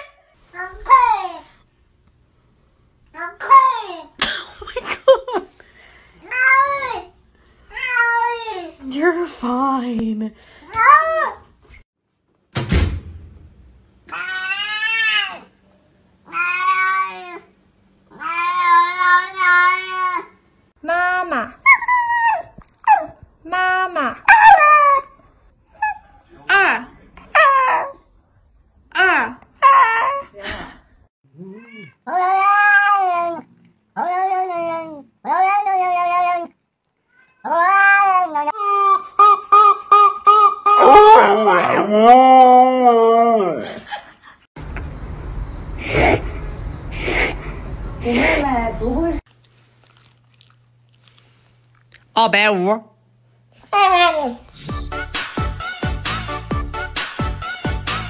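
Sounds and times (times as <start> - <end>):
sudden thump: 12.5 - 13.9
cat meowing drawn-out: 31.4 - 33.4
cat meowing: 31.4 - 38.5.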